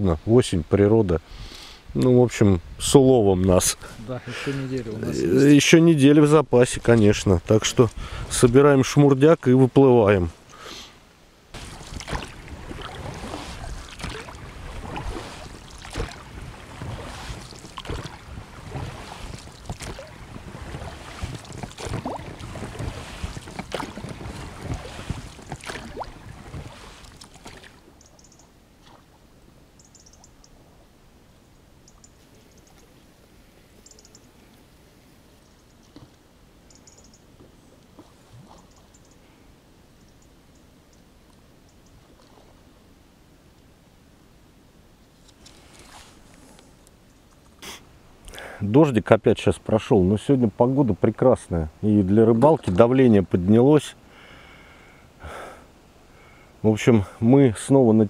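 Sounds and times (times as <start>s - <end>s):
water noise: 2.1s - 39.3s, 39.9s - 43.8s, 45.2s - 48.5s, 49.6s - 58.0s.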